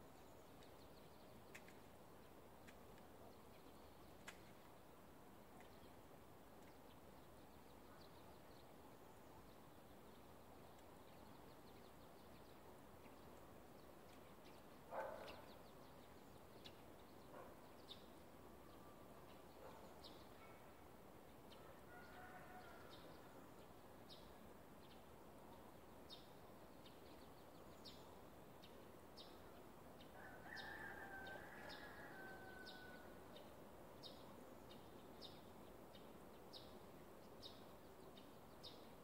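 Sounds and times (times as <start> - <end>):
low outdoor hiss: 0.0 - 39.0
faint ticks: 1.4 - 1.9.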